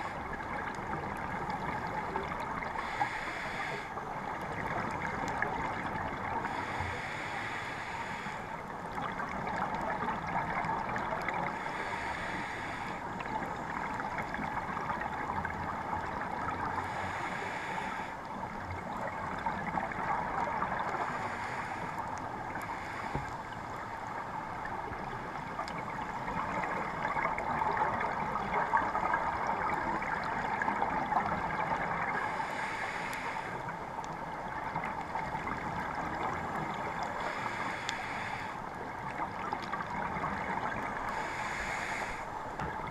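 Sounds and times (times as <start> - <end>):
bubbles gurgling underwater: 9.0 - 11.6, 24.6 - 32.2.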